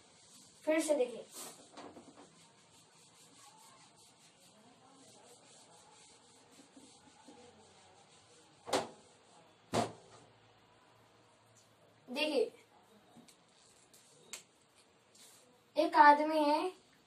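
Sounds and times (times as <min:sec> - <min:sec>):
duster rubbing whiteboard: 0:00.0 - 0:09.3.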